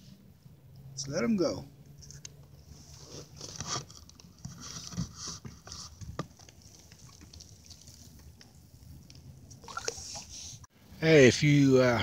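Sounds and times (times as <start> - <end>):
water dripping and splashing: 6.3 - 10.3.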